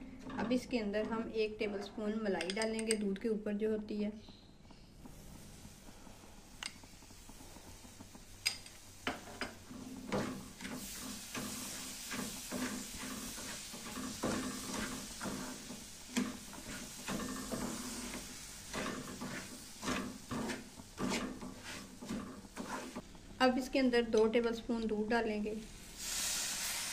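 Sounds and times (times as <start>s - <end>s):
spatula scraping a steel pan: 10.1s - 23.0s.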